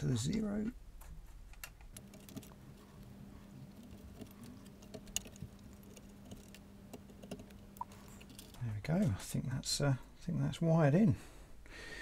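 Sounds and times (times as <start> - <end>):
faint steady hum: 0.0 - 12.0
small clicks and taps: 3.7 - 8.6.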